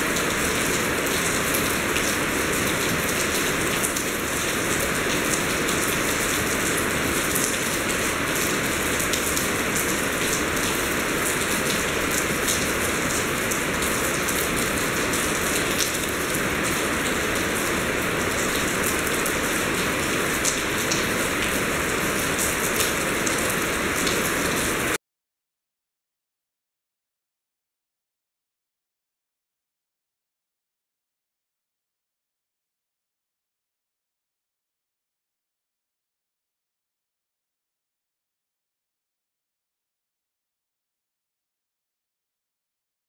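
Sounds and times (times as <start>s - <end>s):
heavy rain falling: 0.0s - 25.0s.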